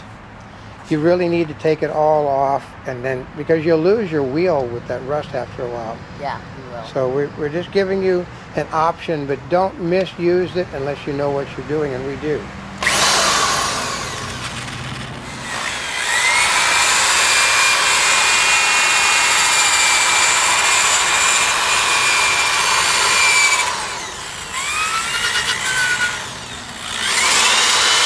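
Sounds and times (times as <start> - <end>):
electric drill sanding metal wheel: 12.3 - 28.0.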